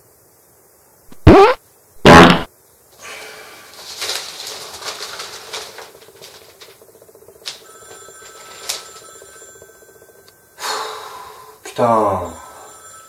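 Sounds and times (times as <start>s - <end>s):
newspaper pages rustling: 3.6s - 6.8s, 8.2s - 9.1s
telephone ringing: 5.8s - 10.6s, 12.1s - 13.0s.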